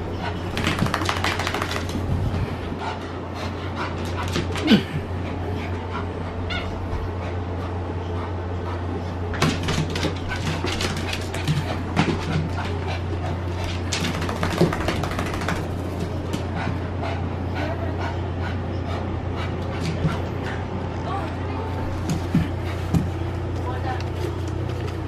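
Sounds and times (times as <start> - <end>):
claws clicking on hardwood floor: 0.5 - 2.0, 13.6 - 16.5.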